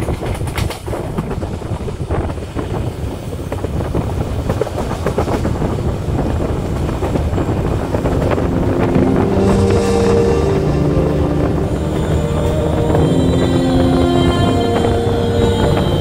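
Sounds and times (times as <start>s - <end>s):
train wheels clattering on rails: 0.0s - 9.8s
wind buffeting microphone: 0.0s - 16.0s.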